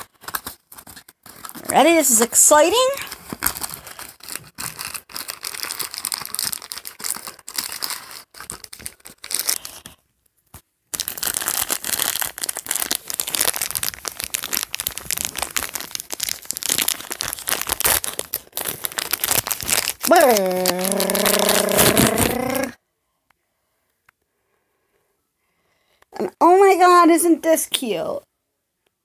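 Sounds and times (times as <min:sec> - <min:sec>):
toy packaging crinkling and tearing: 0:00.0 - 0:10.1, 0:10.9 - 0:22.8.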